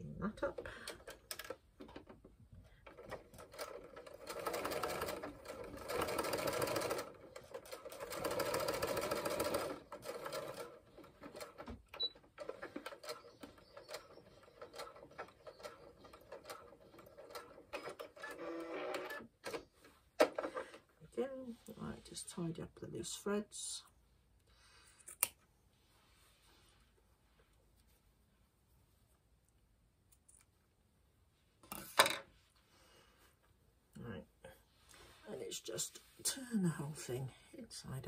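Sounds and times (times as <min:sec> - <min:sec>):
sewing machine stitching: 0:02.9 - 0:20.8.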